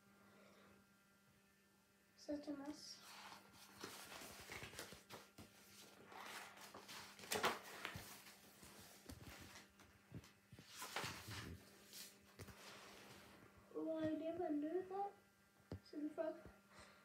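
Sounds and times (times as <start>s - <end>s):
book and bedcovers rustling: 2.9s - 14.2s.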